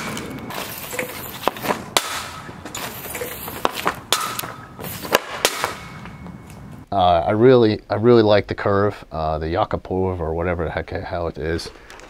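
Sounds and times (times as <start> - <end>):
hockey stick striking pucks: 0.0 - 6.6.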